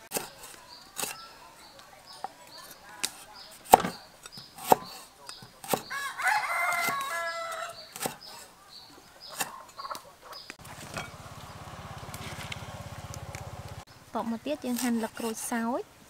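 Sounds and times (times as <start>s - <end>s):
cleaver chopping on wooden block: 3.7s - 4.0s, 4.6s - 5.9s
rooster crowing: 5.9s - 7.8s.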